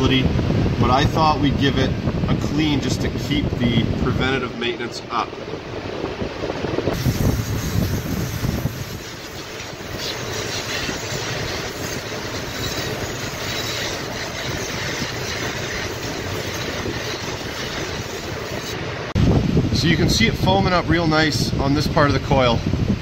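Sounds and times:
aerosol spray hiss: 7.0s - 18.7s.

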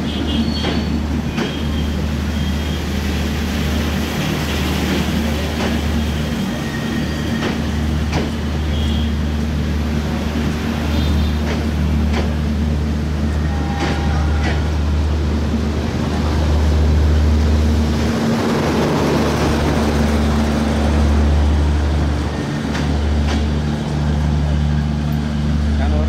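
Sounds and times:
train wheels clacking over rail joints: 0.3s - 2.2s, 4.1s - 8.8s, 10.0s - 15.0s, 22.5s - 24.2s.

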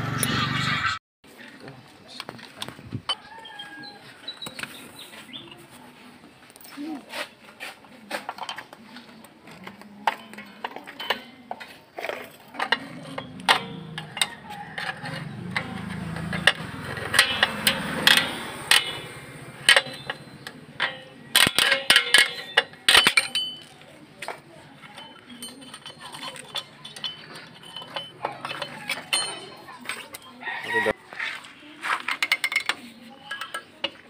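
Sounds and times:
steel tool clicking on brake parts: 9.7s - 30.3s.

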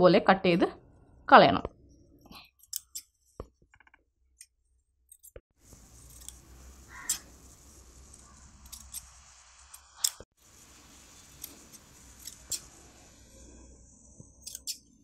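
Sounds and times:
shears snipping cloth: 5.7s - 10.3s, 11.0s - 12.8s.

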